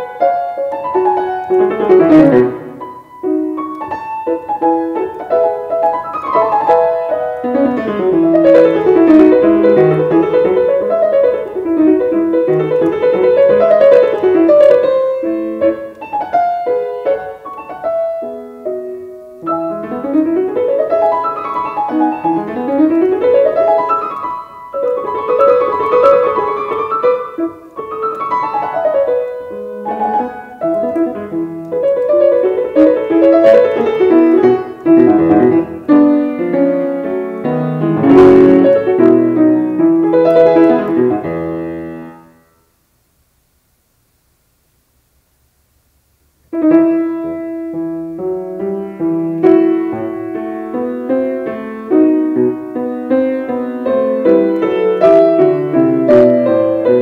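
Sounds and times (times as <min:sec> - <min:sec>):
grand piano classical piece: 0:00.0 - 0:42.6, 0:46.5 - 0:57.0.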